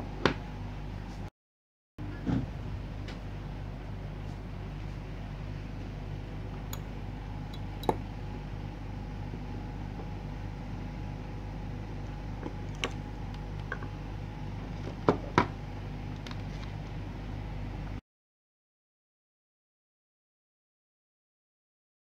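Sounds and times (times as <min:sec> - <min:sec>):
steady low hum: 0:02.0 - 0:18.0.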